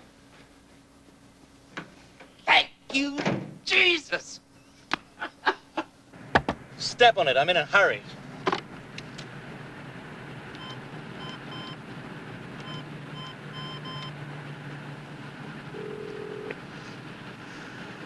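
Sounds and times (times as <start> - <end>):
background hum: 0.0 - 18.0
telephone keypad beeping: 12.6 - 14.1.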